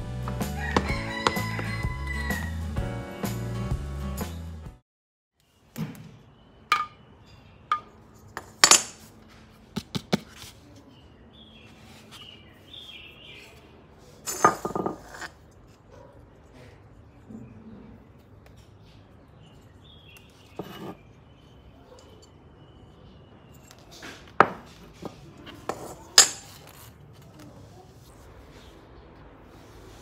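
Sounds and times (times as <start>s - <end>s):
music: 0.0s - 4.8s
objects clinking on tiled floor: 14.2s - 15.7s.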